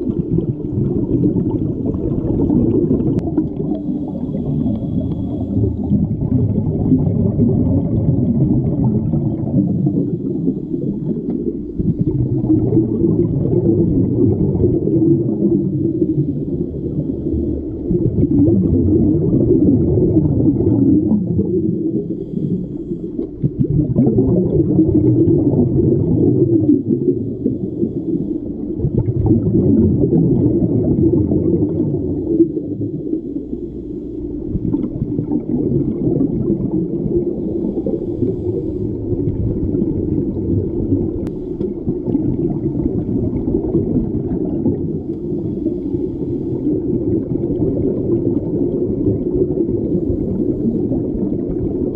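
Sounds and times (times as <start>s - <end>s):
bubbles streaming: 0.0s - 51.9s
underwater rumble: 0.0s - 51.9s.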